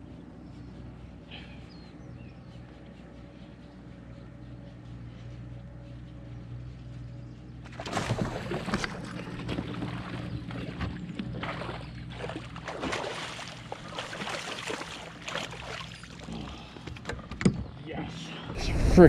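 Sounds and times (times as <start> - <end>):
steady low hum: 0.0 - 19.0
water splashing against kayak hull: 7.7 - 17.1.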